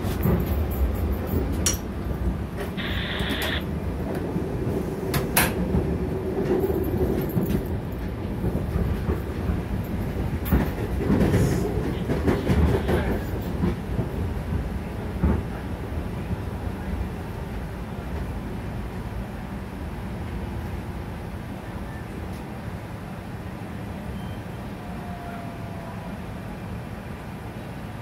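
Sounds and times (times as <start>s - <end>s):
wheels clacking on rail: 0.0s - 19.1s
train wheels rumbling on rail: 0.0s - 28.0s
high hiss: 2.8s - 3.6s.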